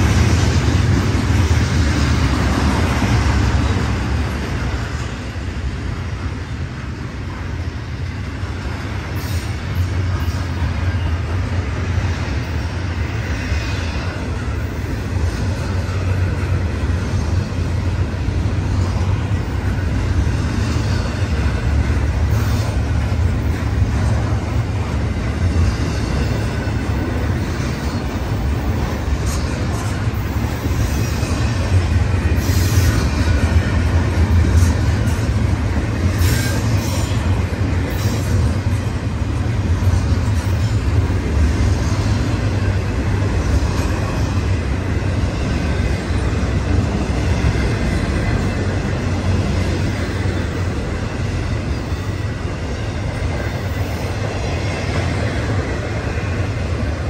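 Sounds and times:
freight train wheels rumbling: 0.0 - 57.0
train cars clanking: 0.0 - 57.0.

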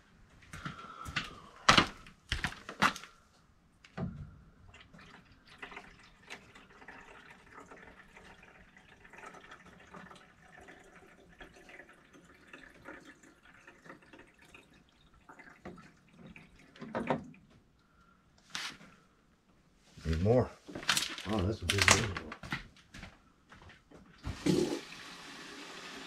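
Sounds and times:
water trickling into reservoir: 4.0 - 18.1.

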